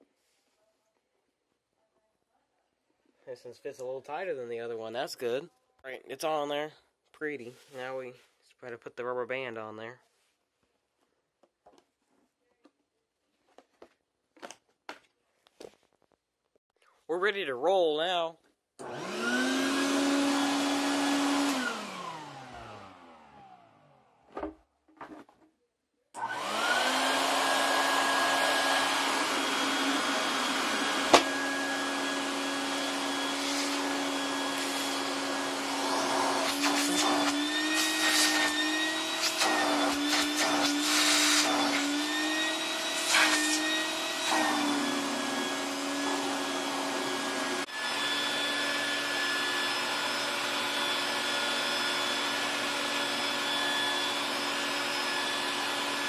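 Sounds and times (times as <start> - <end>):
shop vacuum motor whine: 18.8 - 24.4, 26.2 - 56.0.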